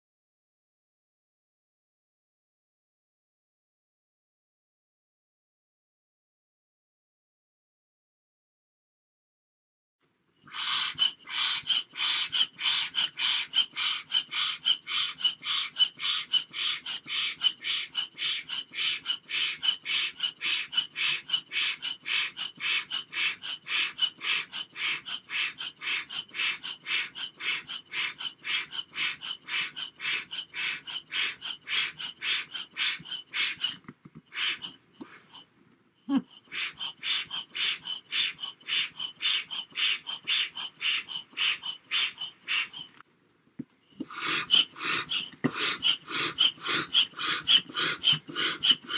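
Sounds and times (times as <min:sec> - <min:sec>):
hand air pump hissing puffs: 0:10.5 - 0:35.4, 0:36.3 - 0:43.0, 0:44.0 - 0:48.9.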